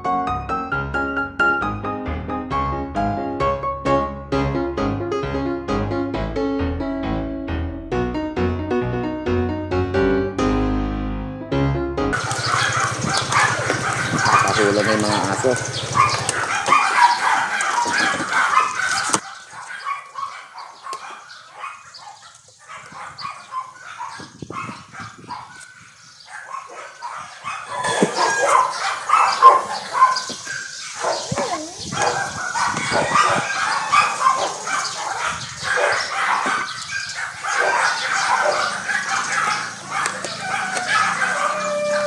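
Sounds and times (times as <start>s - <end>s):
small dogs barking and yapping: 12.2s - 42.0s.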